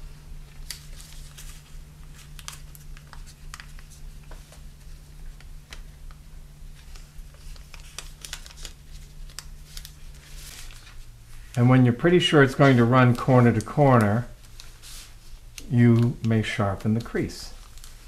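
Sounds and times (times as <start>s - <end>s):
faint steady hum: 0.0s - 18.0s
paper crinkling: 0.4s - 18.0s.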